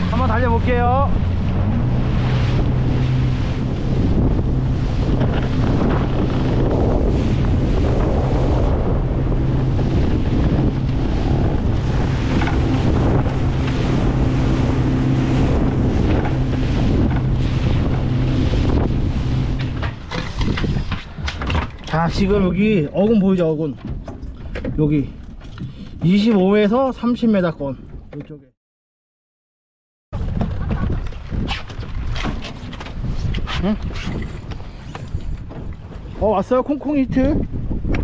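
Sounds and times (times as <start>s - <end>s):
hull splashing through waves: 0.0s - 23.0s
wind on microphone: 0.0s - 23.2s, 30.2s - 38.0s
boat engine humming: 0.0s - 27.2s, 30.2s - 38.0s.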